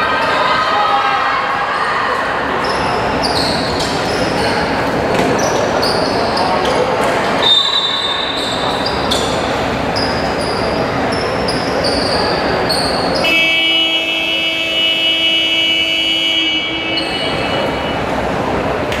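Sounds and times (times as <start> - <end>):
crowd chatter: 0.0 - 19.0
scoreboard horn blast: 13.2 - 16.9.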